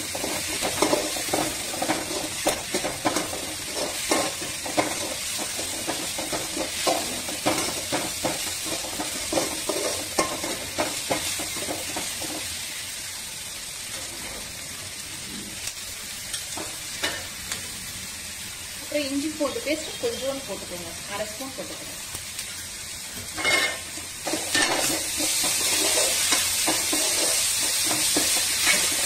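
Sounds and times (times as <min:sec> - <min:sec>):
vegetables sizzling in oil: 0:00.0 - 0:29.0
metal ladle scraping pan: 0:23.4 - 0:29.0.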